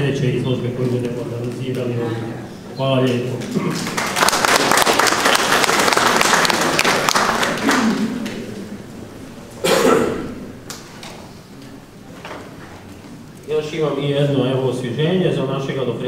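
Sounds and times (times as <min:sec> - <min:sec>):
audience applauding: 0:03.4 - 0:08.4.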